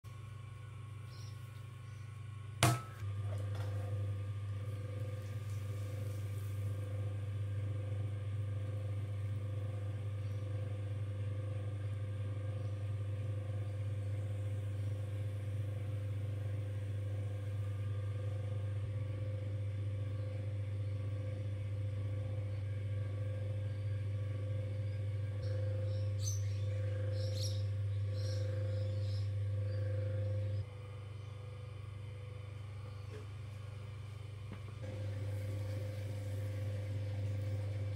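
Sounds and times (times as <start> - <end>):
potter's wheel humming: 0.0 - 37.9
clay slapped onto metal wheel: 2.6 - 3.6.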